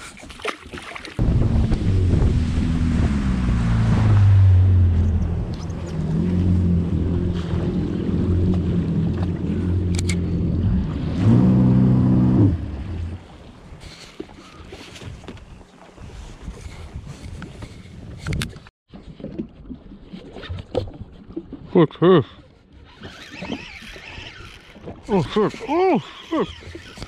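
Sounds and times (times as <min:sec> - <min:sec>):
water lapping: 0:00.0 - 0:18.2, 0:18.9 - 0:27.0
wind: 0:00.0 - 0:27.0
jet ski engine running: 0:01.2 - 0:13.6.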